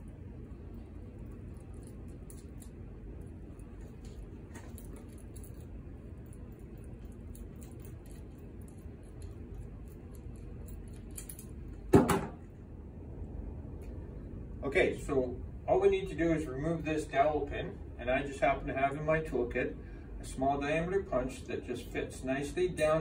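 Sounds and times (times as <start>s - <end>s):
small steel parts clinking: 1.2s - 11.8s.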